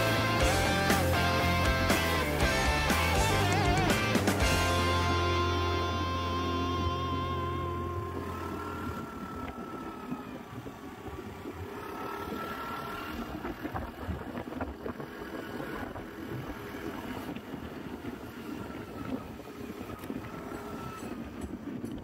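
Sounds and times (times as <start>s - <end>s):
scooter engine running: 0.0s - 22.0s
wind on microphone: 4.4s - 22.0s.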